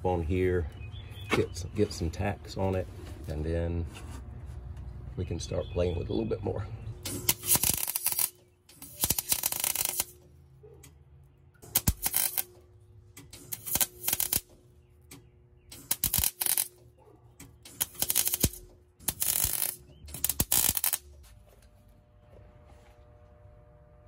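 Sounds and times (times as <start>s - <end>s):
welding arc crackling: 7.0s - 10.3s, 11.6s - 12.6s, 13.2s - 14.7s, 15.7s - 16.9s, 17.5s - 21.2s.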